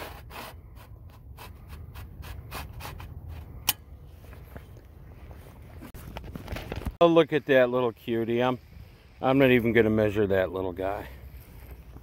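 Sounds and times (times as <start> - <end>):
handling noise on microphone: 2.7 - 7.0.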